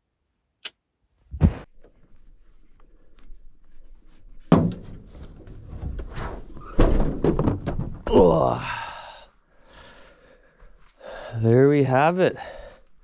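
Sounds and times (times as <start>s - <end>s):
clothing and shoes rustling: 1.3s - 1.7s
sharp thump: 1.3s - 1.7s
shuffling on ribbed bed liner: 1.3s - 4.5s.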